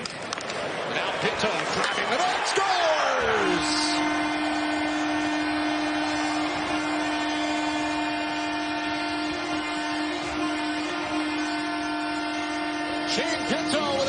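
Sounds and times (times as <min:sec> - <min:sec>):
crowd cheering: 0:00.0 - 0:14.0
goal horn blast: 0:02.0 - 0:14.0.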